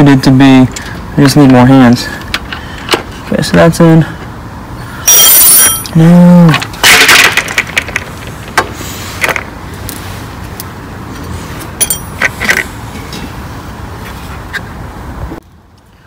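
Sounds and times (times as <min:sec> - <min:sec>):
steady background hum: 0:00.0 - 0:16.0
clicks and knocks of parts: 0:02.2 - 0:03.1, 0:05.6 - 0:10.0, 0:11.7 - 0:13.2
plastic rustling burst: 0:06.6 - 0:08.3.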